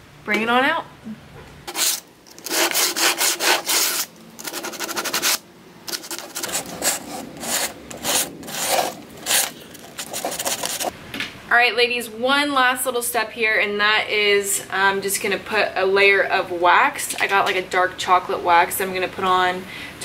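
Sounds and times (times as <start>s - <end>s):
sandpaper rubbing on wood: 1.7s - 10.9s.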